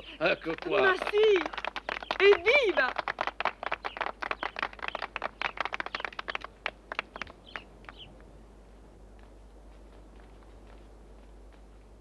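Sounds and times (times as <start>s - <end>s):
group clapping hands: 0.2s - 8.1s.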